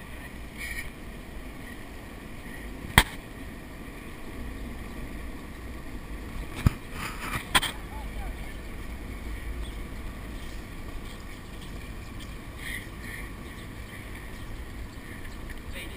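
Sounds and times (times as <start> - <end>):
scooter wheels rolling on asphalt: 0.0 - 15.9
scooter clacking on pavement: 6.6 - 15.9.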